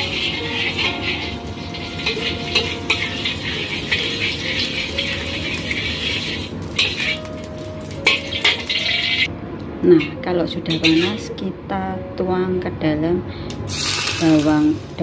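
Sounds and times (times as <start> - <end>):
metal spoon scraping a wok: 0.0 - 7.4, 8.0 - 9.3, 10.7 - 11.2.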